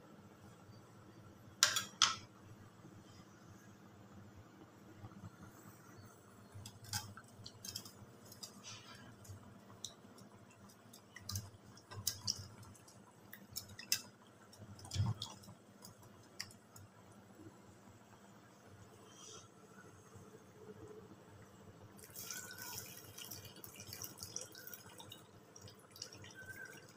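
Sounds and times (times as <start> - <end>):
small water splashes: 22.0 - 26.9.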